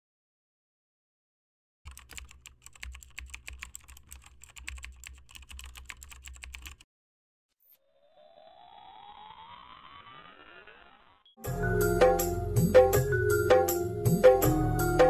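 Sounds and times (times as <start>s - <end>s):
rising tone: 7.6s - 12.5s.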